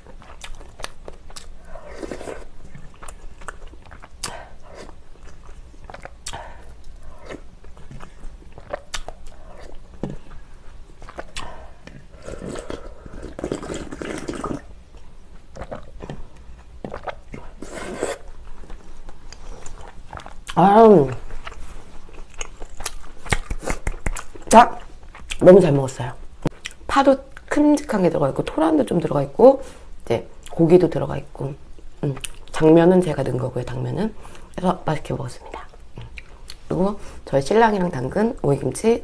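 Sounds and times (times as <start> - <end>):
wet chewing: 0.0 - 25.4
soup slurped from a spoon: 12.2 - 14.7, 17.0 - 18.3.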